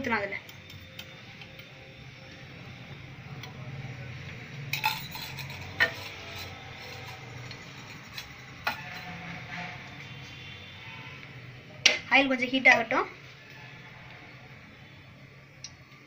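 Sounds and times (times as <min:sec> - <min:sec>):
metal kitchenware clinks: 0:04.7 - 0:09.2.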